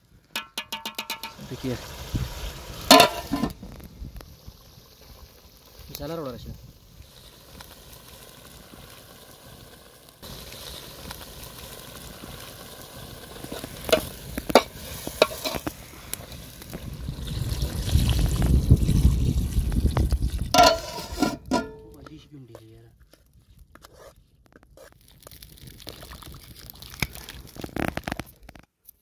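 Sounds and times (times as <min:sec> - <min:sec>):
spoon clinking on metal pot: 0:00.4 - 0:01.4, 0:02.9 - 0:03.5, 0:20.6 - 0:21.9
spoon stirring broth: 0:20.6 - 0:21.8
ringing metal clank: 0:20.6 - 0:21.9.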